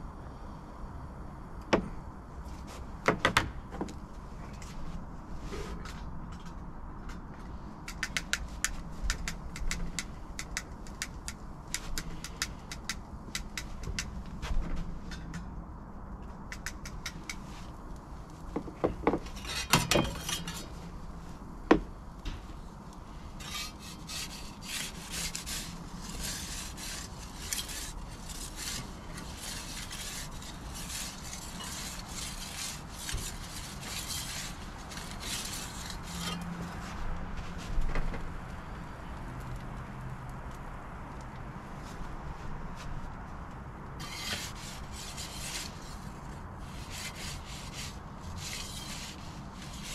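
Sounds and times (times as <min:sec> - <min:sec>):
pizza peel scraping in oven: 0:19.1 - 0:21.3, 0:23.1 - 0:37.0, 0:44.0 - 0:49.9.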